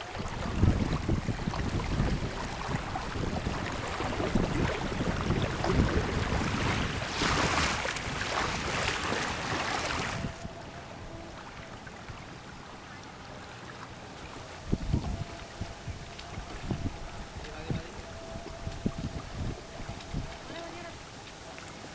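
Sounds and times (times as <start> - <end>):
waves lapping on gravel shore: 0.0 - 10.5
wind buffeting microphone: 0.0 - 13.0, 14.0 - 21.9.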